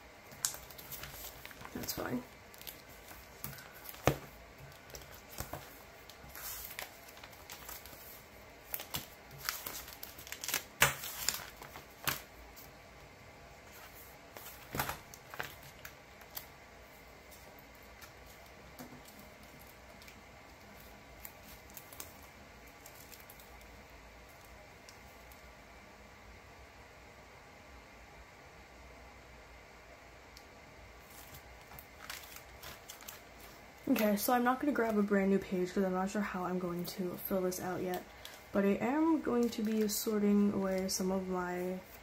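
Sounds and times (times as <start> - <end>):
plastic pages crinkling: 0.3 - 12.7, 13.6 - 23.7, 31.0 - 35.2, 36.8 - 42.0.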